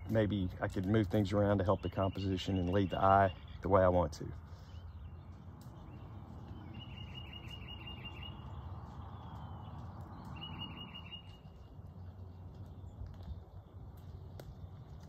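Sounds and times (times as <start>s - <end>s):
songbird whistling: 6.6s - 9.3s, 10.3s - 11.6s.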